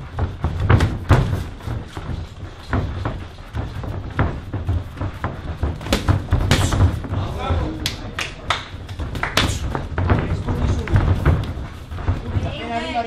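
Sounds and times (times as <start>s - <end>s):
kicks and punches thudding: 0.0s - 7.4s
feet moving on ring mat: 0.0s - 13.0s.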